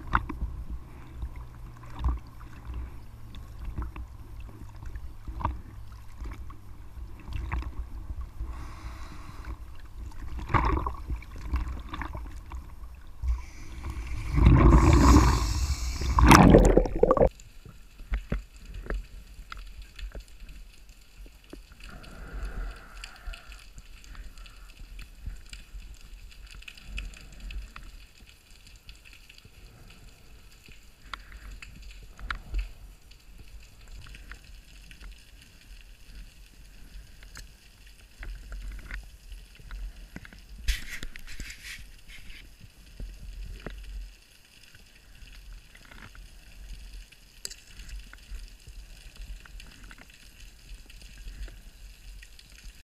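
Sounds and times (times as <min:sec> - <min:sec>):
rush of water: 0:00.0 - 0:17.3
water sloshing and splashing: 0:00.0 - 0:22.1
muffled underwater clicks and crackles: 0:00.0 - 0:52.8.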